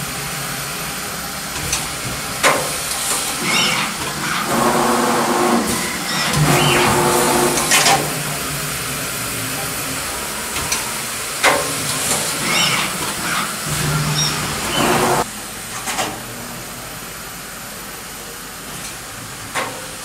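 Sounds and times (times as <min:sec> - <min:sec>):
printing machine hissing: 0:00.0 - 0:15.3
machine squeaks: 0:03.4 - 0:08.0, 0:12.3 - 0:15.2.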